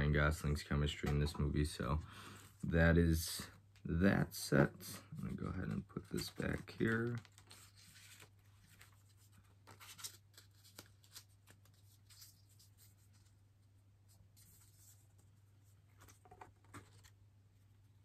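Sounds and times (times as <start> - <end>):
cards rustling and tapping: 5.2 - 13.3, 15.9 - 17.2.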